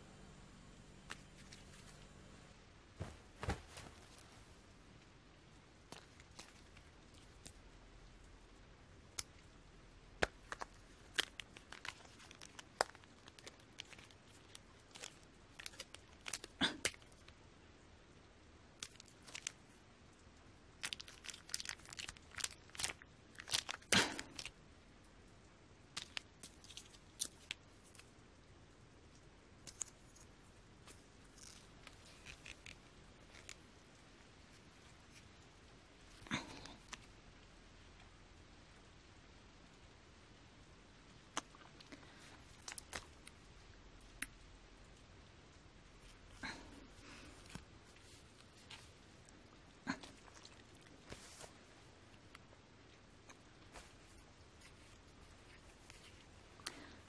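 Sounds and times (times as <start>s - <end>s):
faint hiss: 0.0s - 20.9s.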